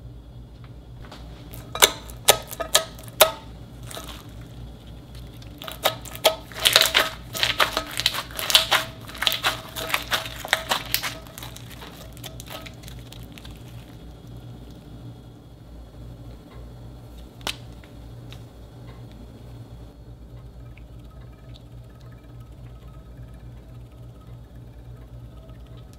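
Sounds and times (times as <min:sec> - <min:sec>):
foam-bead slime crackling: 0:01.4 - 0:14.8.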